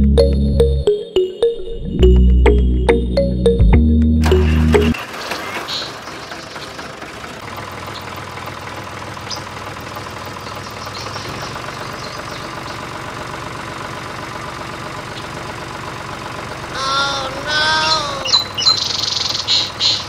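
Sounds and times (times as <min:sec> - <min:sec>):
tractor engine idling: 0:04.2 - 0:20.0
high chirping calls: 0:16.7 - 0:20.0.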